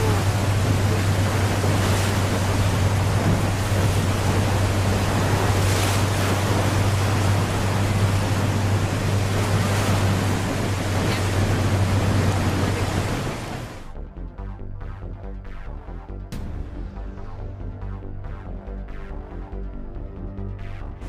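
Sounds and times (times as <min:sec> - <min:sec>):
water rushing over waterfall: 0:00.0 - 0:13.9
low hum: 0:00.0 - 0:14.8.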